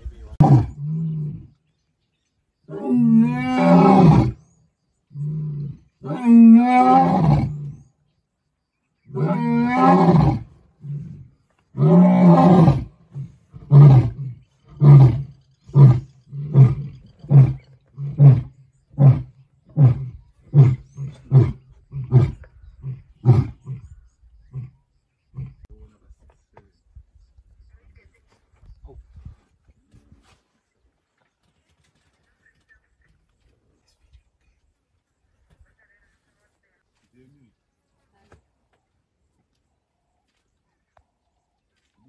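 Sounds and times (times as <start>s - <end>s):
lion roaring: 2.7s - 4.4s, 5.2s - 7.8s, 9.1s - 25.7s.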